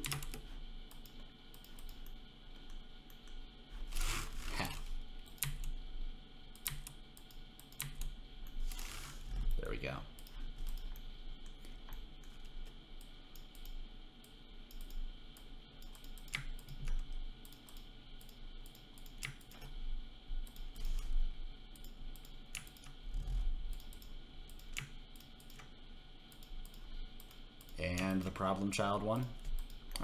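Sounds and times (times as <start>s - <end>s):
keyboard and mouse clicks: 0.0s - 3.4s, 5.2s - 5.8s, 6.6s - 8.8s, 10.2s - 13.8s, 14.7s - 19.8s, 21.8s - 25.7s, 29.4s - 30.0s
steady low hum: 0.0s - 30.0s.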